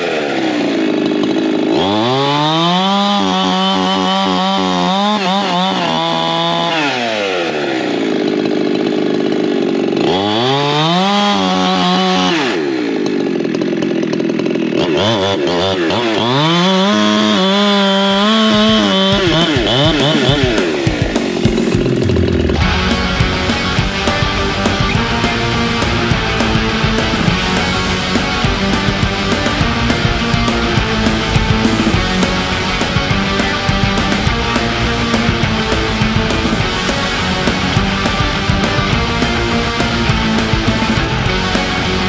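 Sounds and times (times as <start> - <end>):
chainsaw cutting wood: 0.0 - 42.0.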